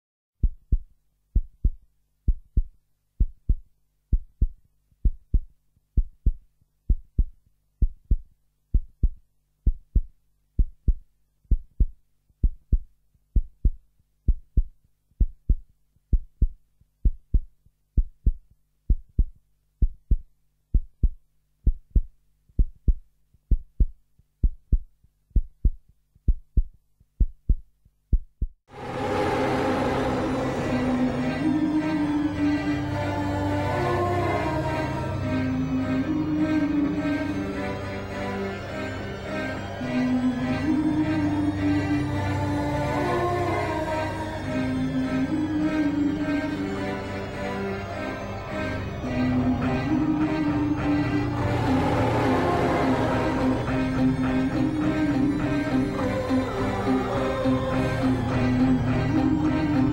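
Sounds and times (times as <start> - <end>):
heartbeat thumps: 0.4 - 28.6.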